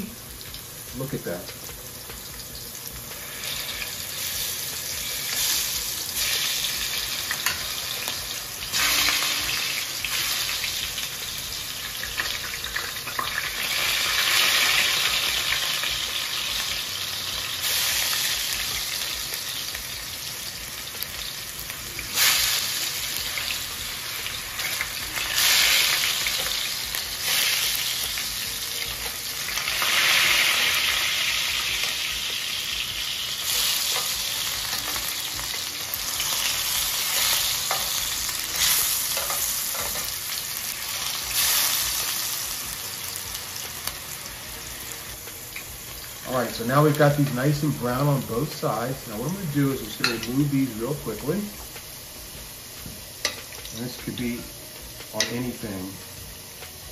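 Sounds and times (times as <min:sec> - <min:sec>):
potatoes sizzling in a pan: 0:00.0 - 0:56.9
metal tongs clacking: 0:37.1 - 0:40.1.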